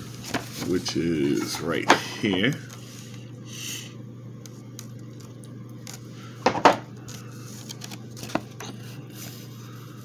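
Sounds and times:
paper rustling: 0:07.0 - 0:10.0.

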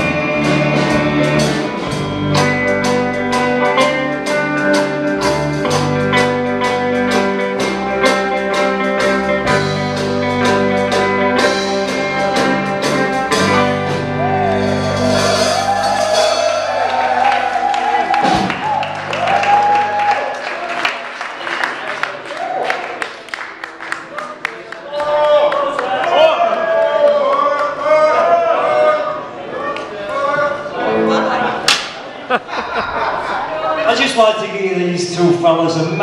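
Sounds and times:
person singing: 0:00.0 - 0:03.7
bass guitar: 0:00.0 - 0:20.2
electric guitars: 0:00.0 - 0:20.2
drums: 0:00.0 - 0:20.6.

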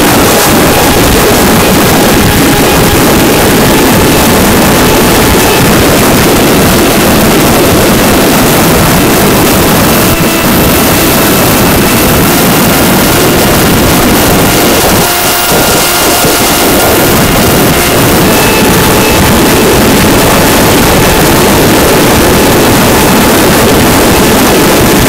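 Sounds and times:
electric motor and propeller whine: 0:00.0 - 0:25.0
rush of airflow over microphone: 0:00.0 - 0:25.0.

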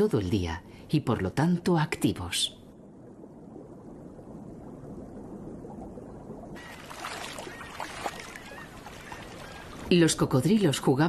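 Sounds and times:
seawater sloshing and gurgling: 0:06.5 - 0:09.9.

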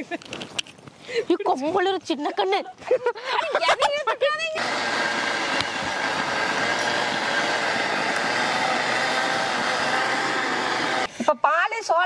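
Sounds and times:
mixer grinder motor whirring: 0:04.6 - 0:11.1.

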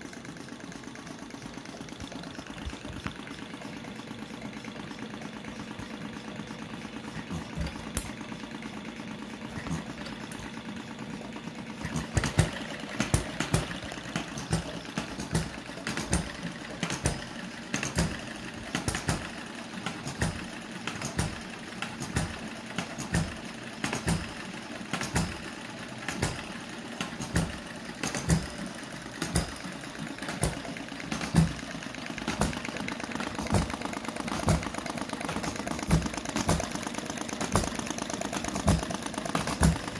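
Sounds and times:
model engines humming: 0:00.0 - 0:39.9
engine firing pops: 0:11.8 - 0:39.9.

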